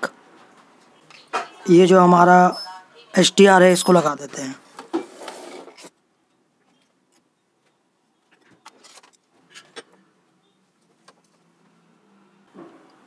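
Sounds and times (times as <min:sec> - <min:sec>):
circuit board rustle: 0:04.7 - 0:06.0, 0:06.6 - 0:10.0.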